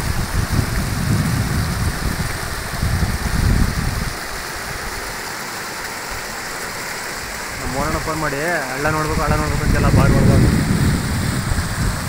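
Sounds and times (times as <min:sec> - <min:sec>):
fast-flowing floodwater hiss: 0:00.0 - 0:12.0
heavy low rumble: 0:08.9 - 0:12.0.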